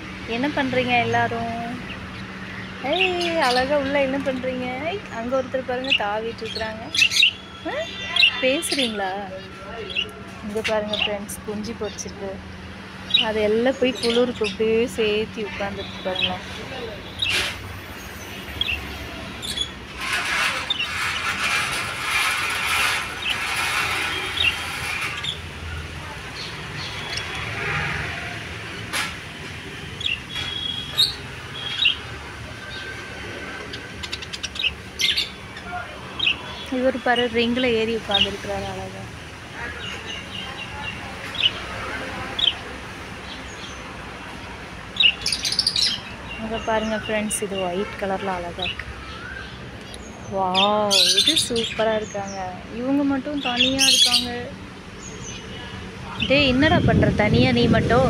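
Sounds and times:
cage birds chirping: 0.0 - 57.1
budgerigars chattering: 33.6 - 37.3, 50.4 - 52.5, 53.4 - 54.5.

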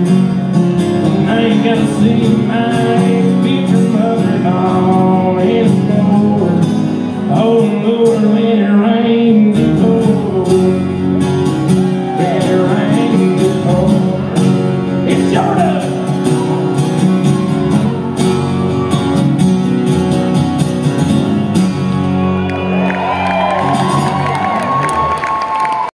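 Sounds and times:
man singing country song: 0.0 - 16.3
acoustic guitars strumming: 0.0 - 25.1
crowd cheering and shouting: 11.0 - 20.4, 21.2 - 25.9.

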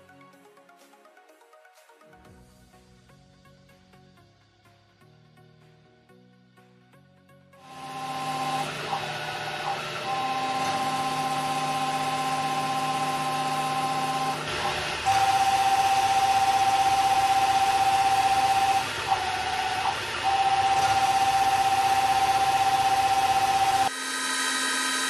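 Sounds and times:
lathe machine whine: 7.6 - 25.0.

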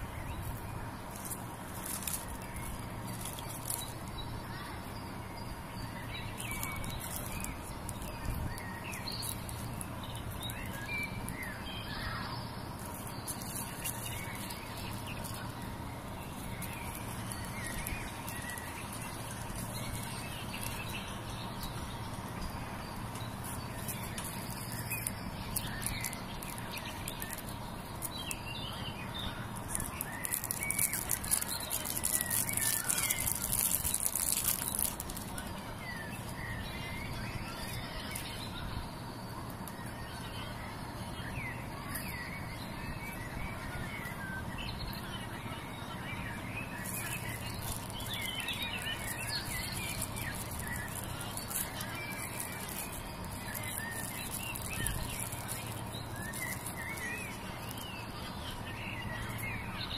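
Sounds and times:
cellophane crinkling: 0.0 - 4.2, 6.1 - 11.7, 12.8 - 22.1, 22.9 - 28.5, 29.4 - 38.5, 46.8 - 58.4
small birds chirping: 0.0 - 59.9.

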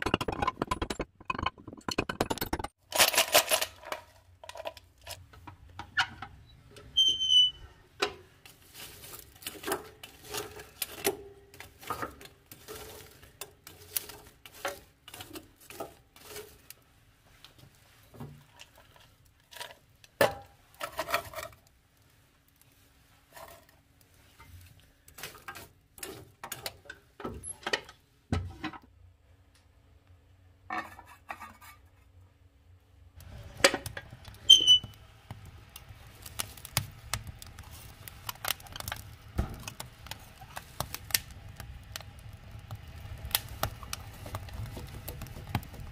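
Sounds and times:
metal clanks and scrapes: 0.0 - 6.3, 7.0 - 16.7, 18.3 - 21.6, 30.7 - 32.1.

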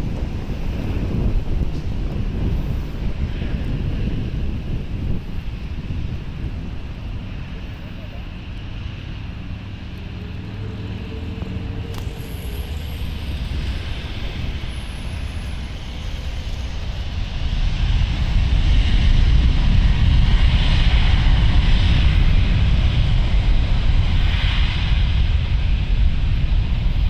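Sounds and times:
road traffic passing: 0.0 - 18.4
jet engines roaring at takeoff: 0.0 - 27.0.

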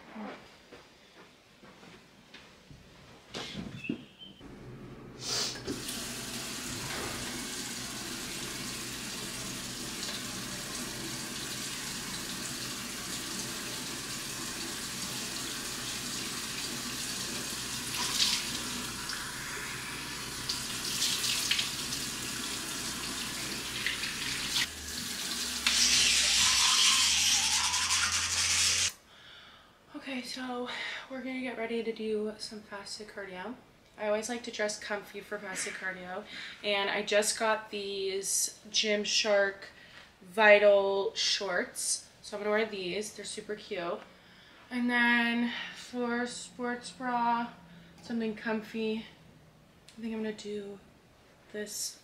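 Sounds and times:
tap water running into sink: 5.6 - 28.9.

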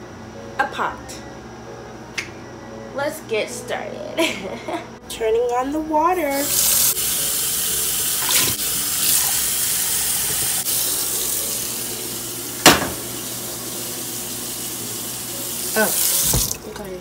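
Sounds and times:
air conditioner hum: 0.0 - 17.0
tap water running into saucepan: 6.4 - 17.0.

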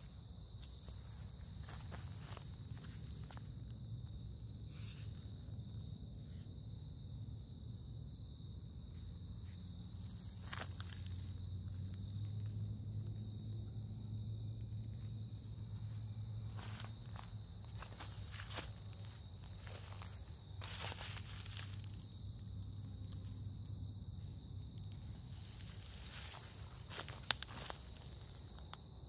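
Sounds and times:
insects chirping: 0.0 - 29.0
footsteps on dry leaves: 0.6 - 3.4, 16.4 - 22.3, 25.3 - 28.8.

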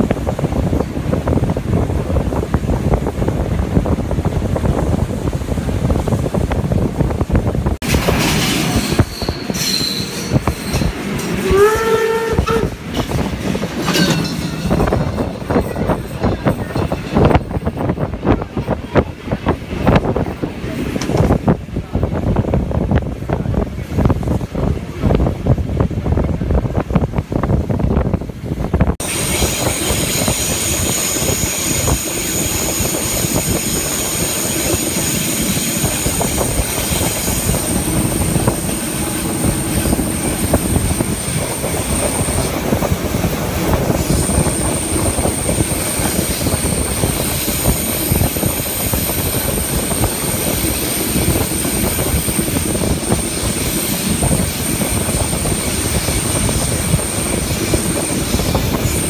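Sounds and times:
train rumble and rail clatter: 0.0 - 59.0
wind buffeting microphone: 0.0 - 59.0
train wheels squealing: 8.4 - 12.6.

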